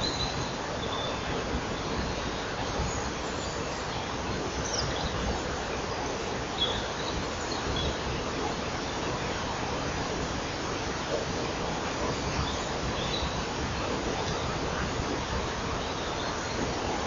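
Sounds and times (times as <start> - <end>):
songbird chirps: 0.0 - 9.9, 12.3 - 14.6.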